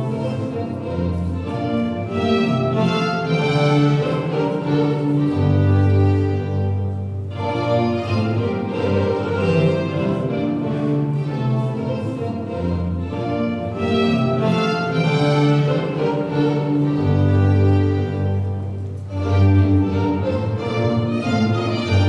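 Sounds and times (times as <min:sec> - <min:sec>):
baroque string music: 0:00.0 - 0:22.0.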